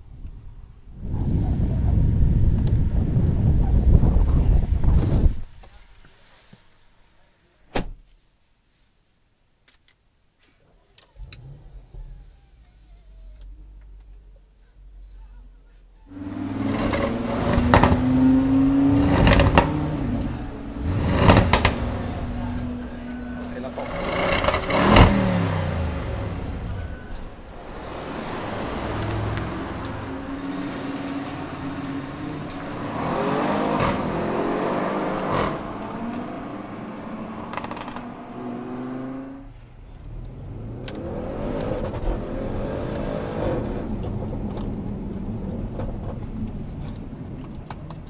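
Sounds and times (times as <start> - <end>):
car engine accelerating: 16.0 - 47.6.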